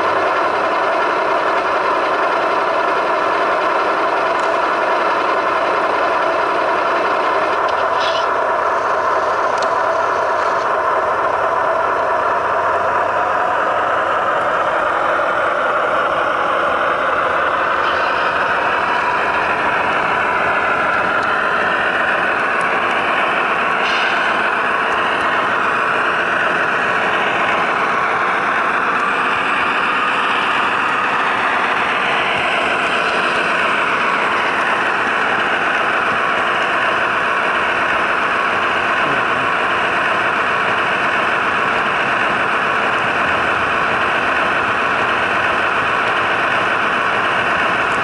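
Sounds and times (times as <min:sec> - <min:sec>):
diesel locomotive running through speakers: 0:00.0 - 0:48.0.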